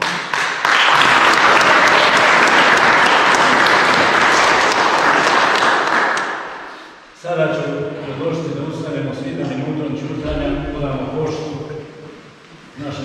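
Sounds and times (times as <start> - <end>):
crowd clapping: 0.0 - 6.8.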